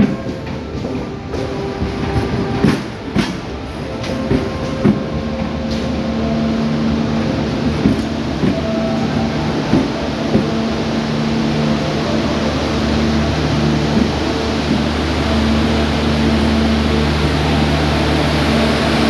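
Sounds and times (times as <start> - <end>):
train coaches rumbling past: 0.0 - 19.0
wheels clicking over rail joints: 7.2 - 10.7.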